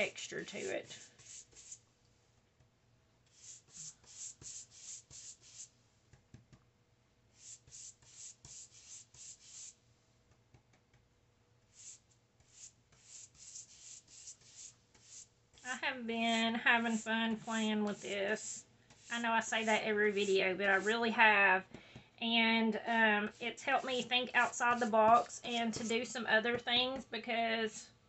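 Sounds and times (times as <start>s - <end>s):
paintbrush strokes on paper: 0.0s - 1.9s, 3.3s - 5.8s, 7.3s - 9.8s, 11.7s - 21.1s, 23.2s - 26.0s.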